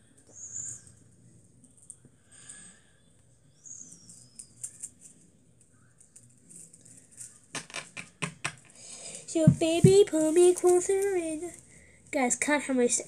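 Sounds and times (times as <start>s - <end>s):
plastic rustling and squeaking: 3.8s - 8.2s, 9.3s - 11.6s
plastic sticks clicking: 7.2s - 8.8s.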